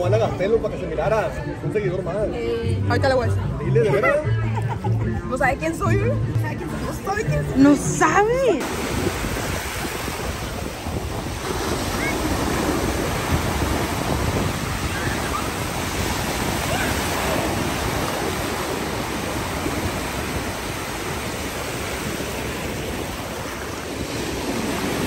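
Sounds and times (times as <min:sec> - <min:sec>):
wind buffeting microphone: 0:05.8 - 0:25.0
small waves breaking: 0:08.6 - 0:25.0.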